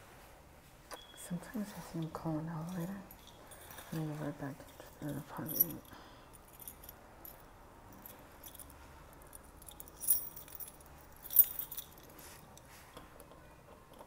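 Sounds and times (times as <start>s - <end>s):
keys jingling: 2.6s - 13.3s.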